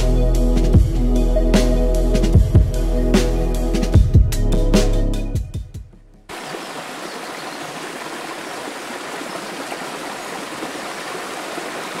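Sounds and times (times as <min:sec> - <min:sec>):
small waterfall rushing into stream: 0:06.3 - 0:12.0.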